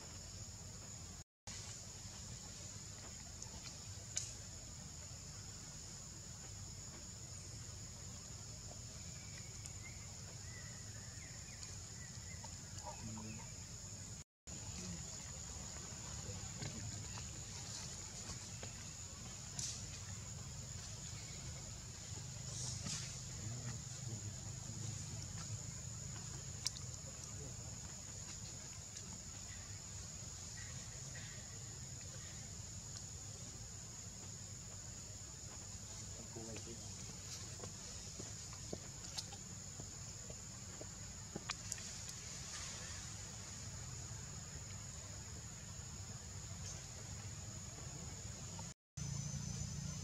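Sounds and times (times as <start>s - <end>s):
faint ticks: 26.2s - 27.4s
high-pitched insect drone: 49.0s - 50.0s.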